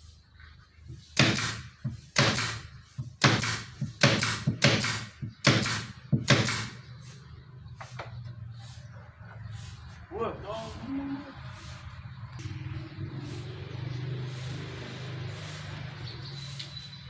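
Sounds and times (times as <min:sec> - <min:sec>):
nail gun shots: 0:01.2 - 0:06.8.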